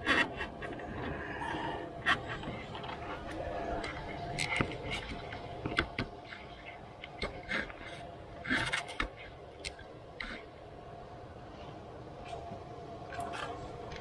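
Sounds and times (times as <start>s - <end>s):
faint steady hum: 0.0s - 14.0s
tools clicking and scraping: 2.0s - 10.5s.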